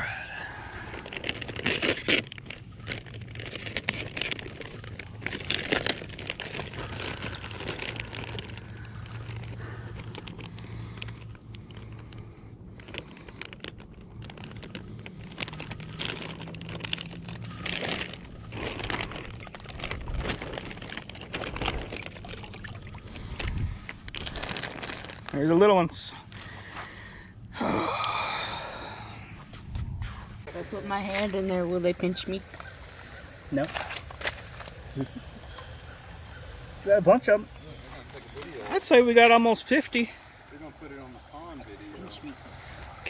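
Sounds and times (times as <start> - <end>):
grass rustling: 0.0 - 27.1, 28.6 - 43.0
plastic bag crinkling in water: 0.3 - 26.6, 31.1 - 35.6.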